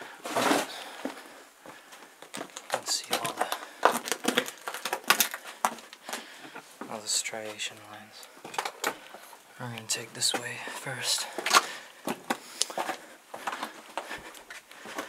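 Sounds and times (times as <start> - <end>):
footsteps on rock rubble: 0.2 - 7.6, 11.2 - 15.0.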